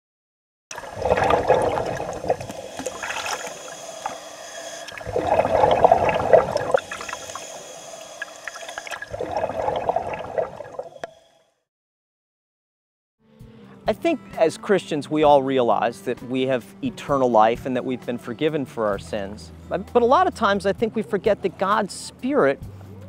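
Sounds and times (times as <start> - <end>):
bubbling underwater exhalations: 0.7 - 3.5, 5.0 - 7.4, 8.8 - 10.9.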